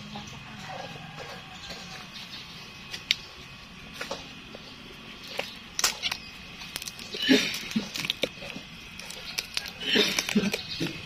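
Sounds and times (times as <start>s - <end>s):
bamboo shoots snapping: 5.8s - 11.0s.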